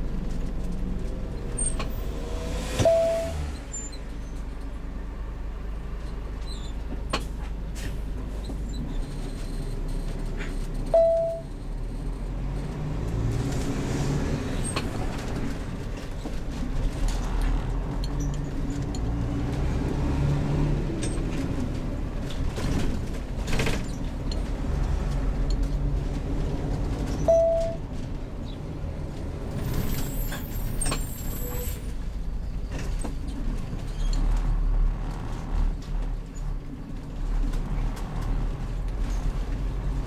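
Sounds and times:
engine and road rumble: 0.0 - 40.0
short beep: 2.8 - 3.6, 10.9 - 11.5, 27.3 - 27.8.

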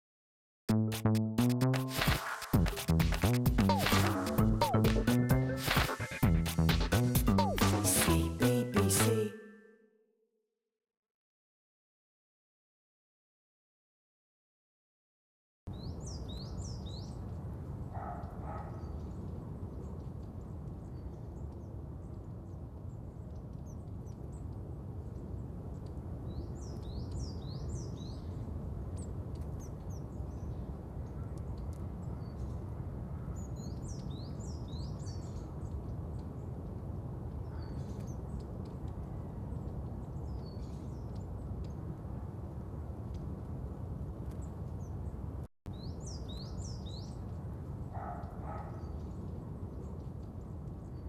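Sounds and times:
small birds chirping: 18.0 - 32.7, 33.3 - 41.9, 44.3 - 51.0.

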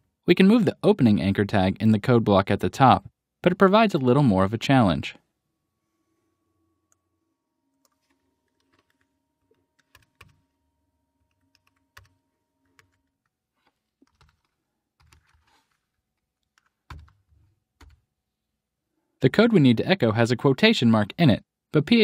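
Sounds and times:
keyboard typing: 7.8 - 10.6, 11.2 - 13.3, 13.9 - 18.0.

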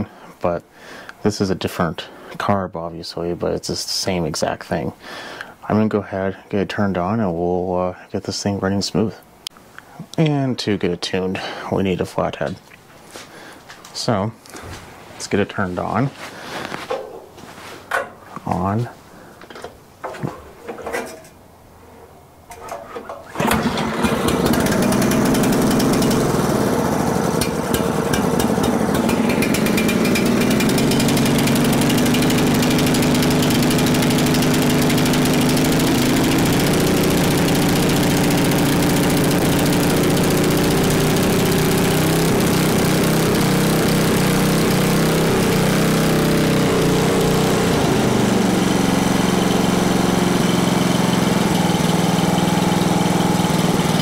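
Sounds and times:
chipper shredder engine running: 23.4 - 54.0.

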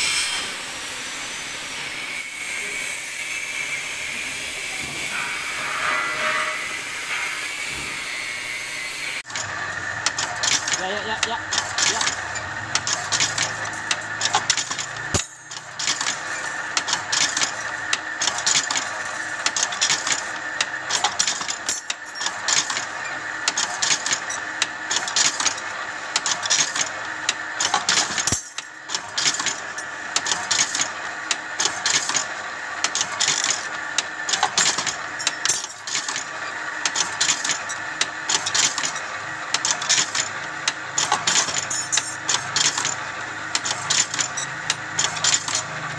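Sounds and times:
wire bending machine running: 0.0 - 45.9
metal clattering and clicking: 23.5 - 45.8.

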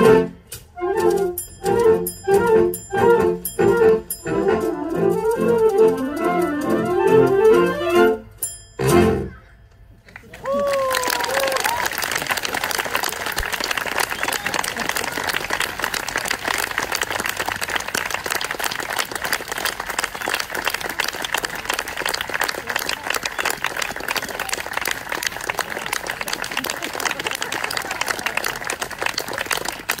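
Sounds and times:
audience applauding: 10.1 - 30.0.

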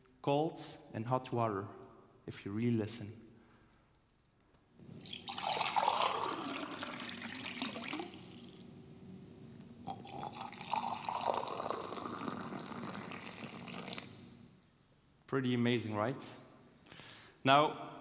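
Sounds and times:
water being poured: 4.9 - 8.7, 9.8 - 14.5.

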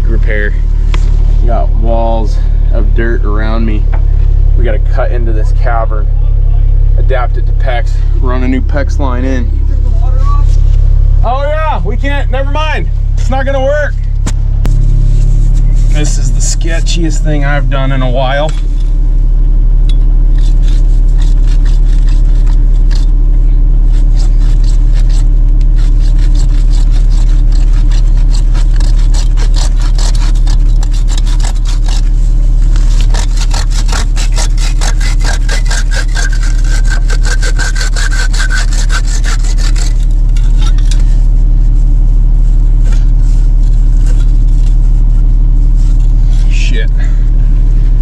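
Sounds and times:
low engine drone: 0.0 - 48.0
hand saw cutting pipe: 20.4 - 23.1, 23.9 - 41.2, 42.8 - 45.0.

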